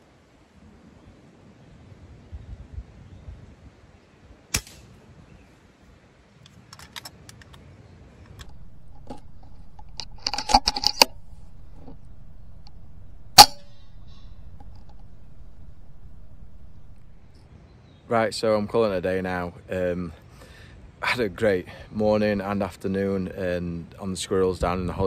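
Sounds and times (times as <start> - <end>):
air rifle shot: 4.5 - 5.0
light metallic clinking and rattling: 8.3 - 17.4
sharp click: 8.3 - 17.4.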